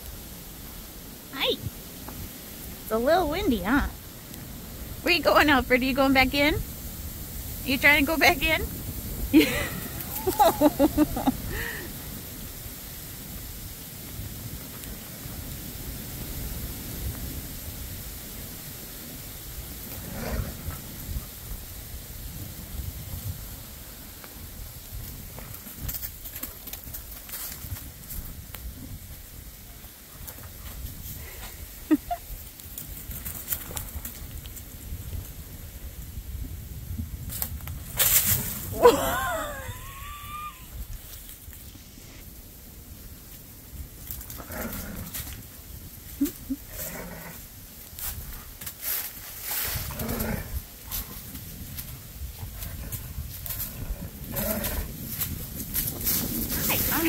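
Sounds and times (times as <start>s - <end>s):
wind rumbling on microphone: 0.0s - 57.0s
dogs play-growling: 44.3s - 45.4s, 46.3s - 47.4s, 49.7s - 51.3s, 52.3s - 55.0s.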